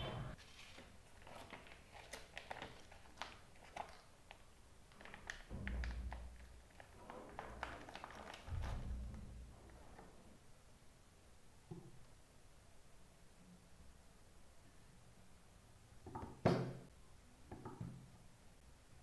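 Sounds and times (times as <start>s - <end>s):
plastic packaging crinkling: 0.4s - 8.8s.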